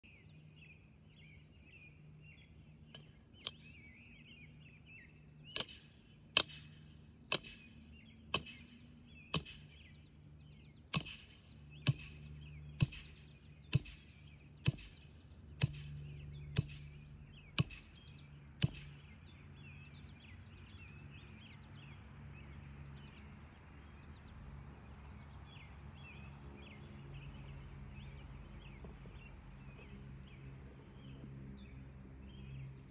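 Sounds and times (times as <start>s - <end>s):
birds chirping faintly: 0.0s - 32.9s
hammer striking steel: 5.6s - 7.7s, 8.3s - 8.7s, 9.3s - 9.8s, 10.9s - 12.2s, 12.8s - 18.0s, 18.6s - 19.2s.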